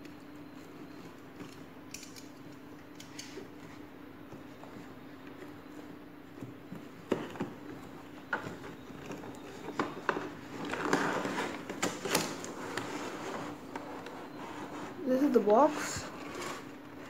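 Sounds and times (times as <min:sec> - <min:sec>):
faint steady hum: 0:00.0 - 0:17.0
plastic tray sliding and rustling: 0:08.6 - 0:17.0.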